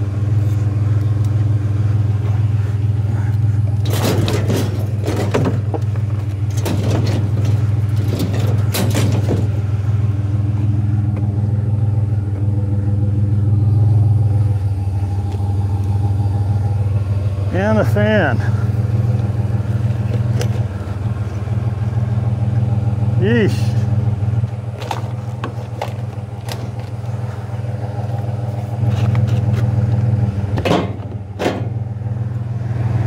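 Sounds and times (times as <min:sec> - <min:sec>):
truck engine idling: 0:00.0 - 0:33.0
metal clanks and rattles: 0:02.1 - 0:11.4, 0:15.3 - 0:22.3, 0:23.6 - 0:32.1.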